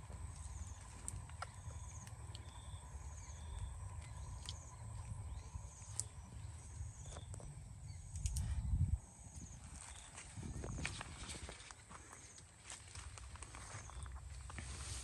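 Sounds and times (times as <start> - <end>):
low rumble: 0.0 - 11.8
small sharp clicks: 8.1 - 8.5.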